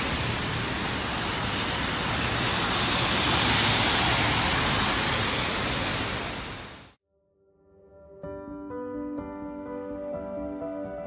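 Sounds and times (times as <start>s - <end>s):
heavy rain falling: 0.0s - 7.0s.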